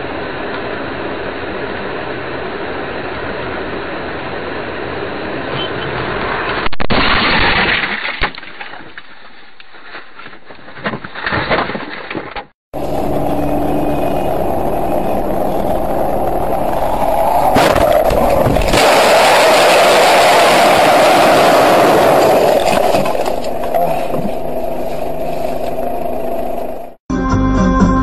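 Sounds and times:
car road and engine noise: 0.0s - 6.7s, 12.3s - 27.0s.

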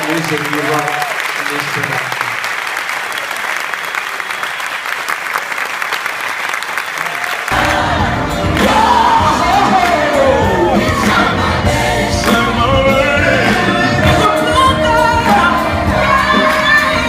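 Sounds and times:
audience applauding: 0.0s - 14.4s
loud amplified music: 7.5s - 17.0s
man singing into a microphone: 12.0s - 17.0s.

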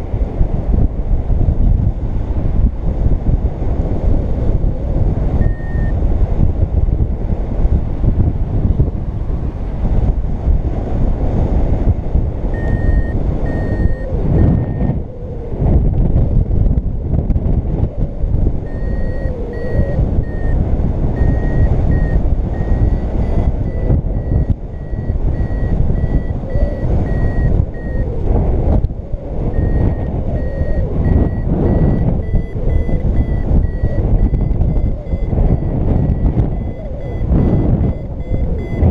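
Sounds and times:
wind rumble on microphone: 0.0s - 38.9s
variometer high beeps: 5.4s - 6.0s, 12.5s - 15.0s, 18.6s - 28.2s, 29.5s - 38.9s.

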